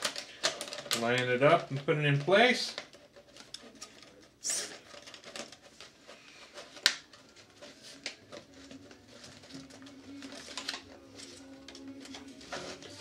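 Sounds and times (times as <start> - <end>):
plastic parts clicking: 0.0 - 5.7, 8.3 - 12.3
plastic rustling and scraping: 0.0 - 13.0.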